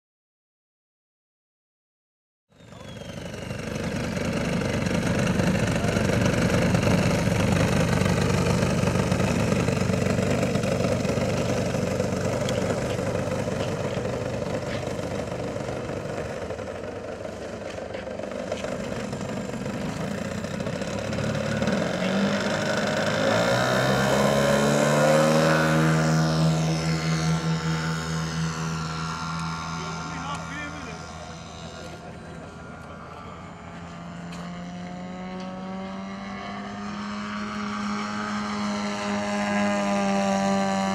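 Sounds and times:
model aeroplane engine running: 0:02.5 - 0:40.9.

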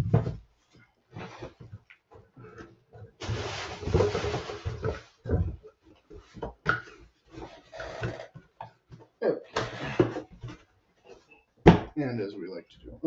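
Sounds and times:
paper and cardboard rustling: 0:03.2 - 0:08.4.

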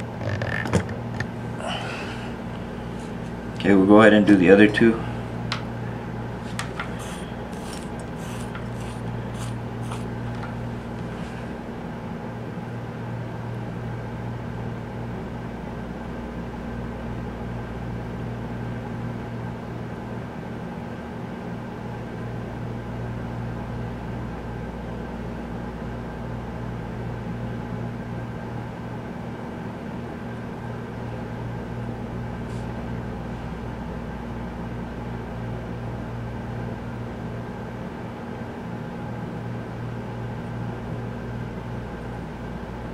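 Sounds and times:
electrical mains hum: 0:00.0 - 0:42.9.

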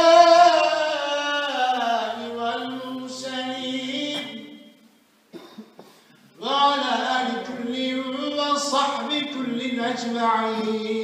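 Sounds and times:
man chanting: 0:06.4 - 0:11.0.

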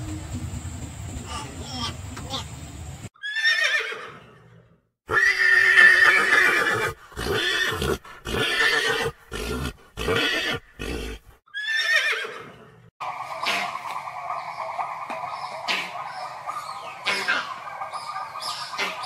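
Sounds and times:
zebra calling: 0:13.0 - 0:19.0.

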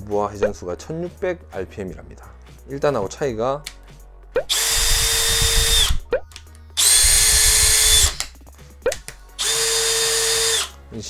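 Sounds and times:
cordless drill whirring: 0:04.5 - 0:06.0, 0:06.8 - 0:08.2, 0:09.4 - 0:10.7.

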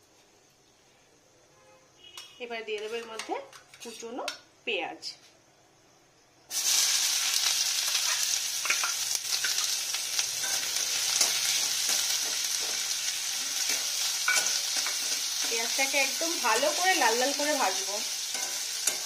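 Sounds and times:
onion sizzling in hot oil: 0:06.4 - 0:19.0.

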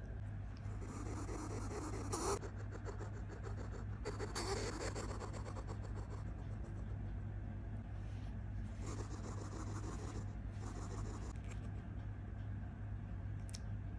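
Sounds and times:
steady low hum: 0:00.0 - 0:13.9.

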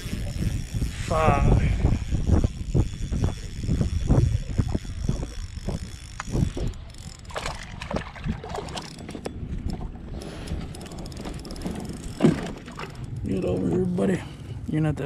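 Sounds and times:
fishing reel clicking: 0:00.0 - 0:07.8, 0:08.6 - 0:12.2
wind buffeting microphone: 0:00.0 - 0:14.6
water lapping at hull: 0:02.9 - 0:14.6.

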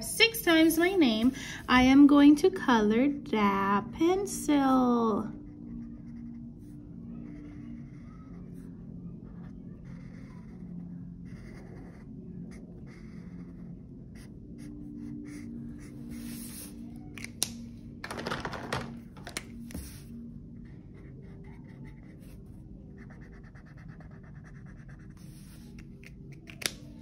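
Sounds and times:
marker scribbling on paper: 0:23.0 - 0:26.8.

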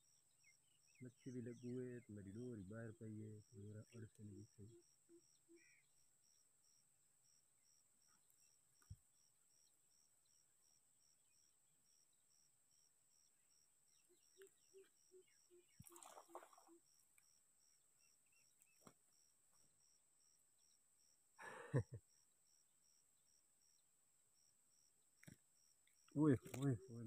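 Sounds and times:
cricket chirping: 0:00.0 - 0:27.0.

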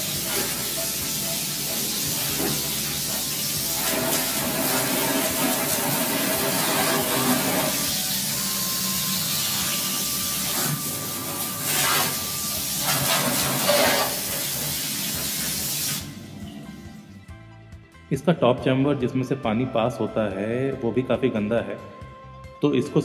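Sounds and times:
water jet spraying on cooling pad: 0:00.0 - 0:16.2.

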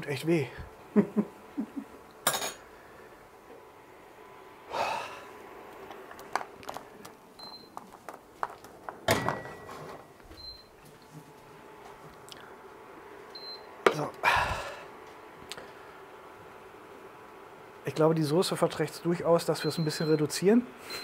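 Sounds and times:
man breathing out hard: 0:14.2 - 0:14.9.

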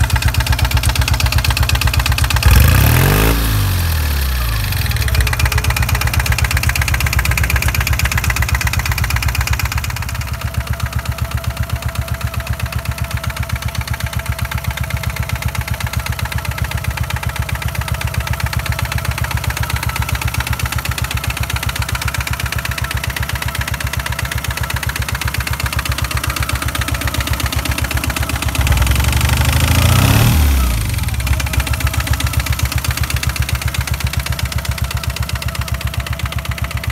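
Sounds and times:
motorcycle diesel engine idling: 0:00.0 - 0:36.9
engine revving: 0:02.2 - 0:06.5, 0:26.5 - 0:34.0.

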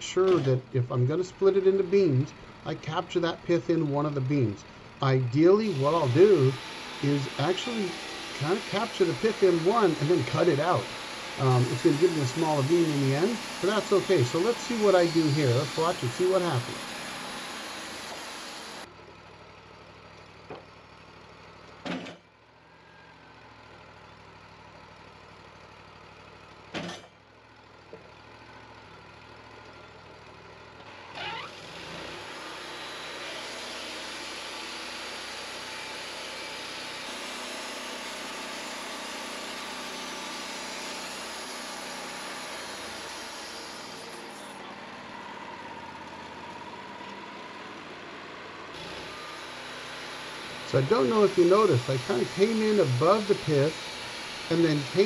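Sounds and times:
sawmill engine running: 0:00.0 - 0:21.8, 0:27.4 - 0:55.0
band blade cutting log: 0:05.7 - 0:18.8, 0:50.2 - 0:55.0.

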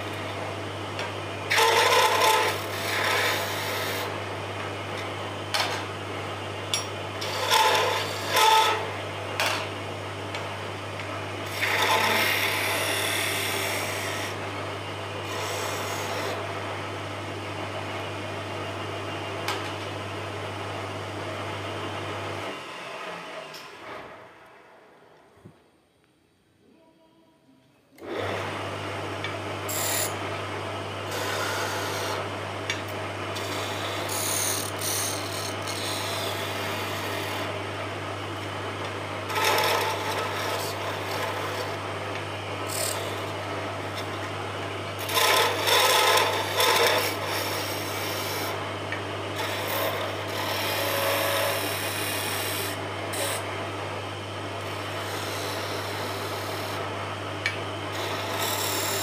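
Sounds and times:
wood lathe humming: 0:01.4 - 0:04.2, 0:06.7 - 0:09.0, 0:11.4 - 0:14.4, 0:15.2 - 0:16.5, 0:29.7 - 0:30.4, 0:31.0 - 0:37.6, 0:38.8 - 0:44.2, 0:44.9 - 0:53.8, 0:54.5 - 0:59.0
chisel scraping spinning wood: 0:01.5 - 0:04.1, 0:07.2 - 0:08.9, 0:11.5 - 0:14.3, 0:31.1 - 0:32.2, 0:39.3 - 0:41.8, 0:45.0 - 0:48.6, 0:49.4 - 0:53.4, 0:57.9 - 0:59.0.

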